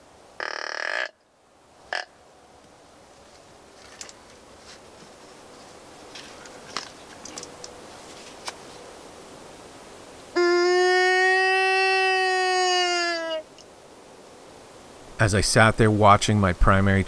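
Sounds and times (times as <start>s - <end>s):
reedy deer call bleat: 0.4s - 1.2s, 1.9s - 2.2s, 10.3s - 13.6s
faint clicks and rustles: 2.6s - 9.0s.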